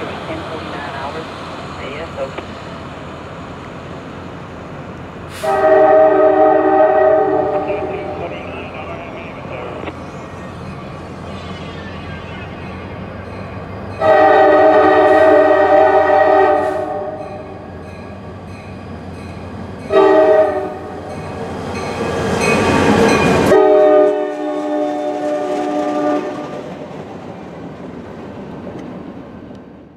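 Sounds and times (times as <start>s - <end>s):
diesel locomotive engine: 0.0s - 29.9s
train wheels on rails: 0.0s - 29.9s
locomotive air horn blasts: 5.3s - 8.2s, 14.0s - 17.2s, 19.9s - 21.0s, 23.5s - 26.4s.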